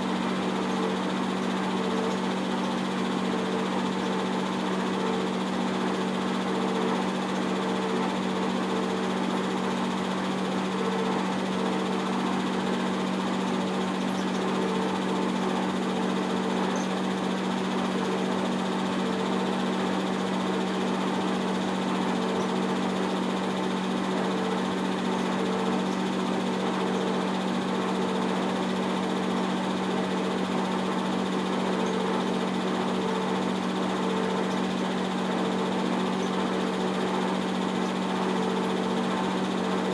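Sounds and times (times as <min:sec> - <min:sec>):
film projector running: 0:00.0 - 0:39.9.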